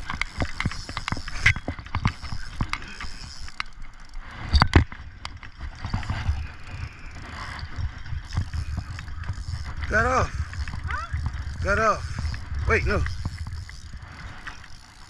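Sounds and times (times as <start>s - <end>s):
fishing reel clicks and knocks: 0.0s - 15.0s.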